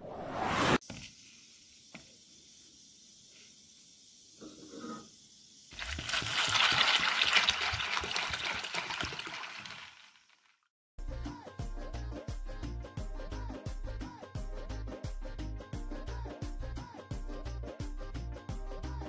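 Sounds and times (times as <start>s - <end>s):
water pouring onto chickpeas: 5.7s - 10.6s.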